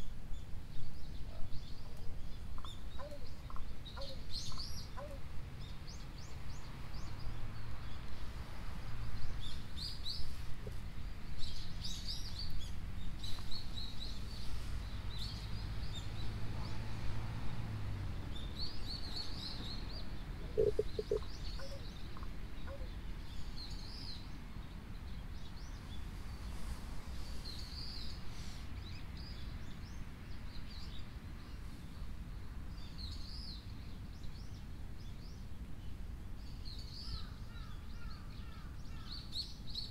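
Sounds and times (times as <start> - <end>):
small birds chirping: 18.3 - 39.9
low background rumble: 20.3 - 21.5.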